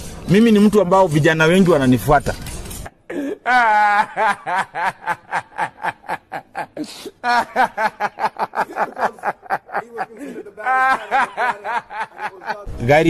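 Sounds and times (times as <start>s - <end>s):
man laughing hard: 3.1s - 12.7s.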